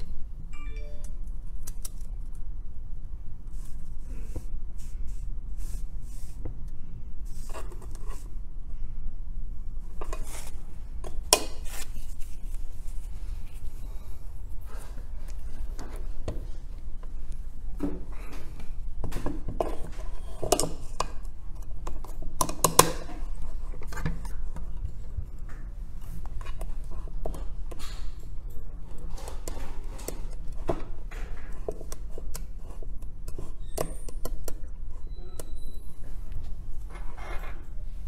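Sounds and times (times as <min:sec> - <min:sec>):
steady low hum: 0:00.0 - 0:33.6.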